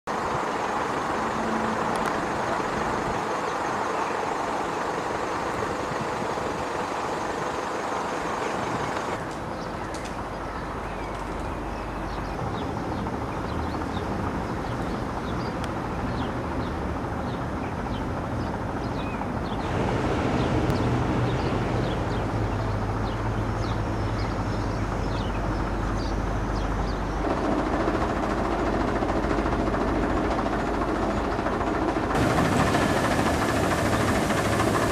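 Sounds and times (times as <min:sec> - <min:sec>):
distant traffic rumble: 0:00.1 - 0:34.9
small birds chirping: 0:20.4 - 0:27.2.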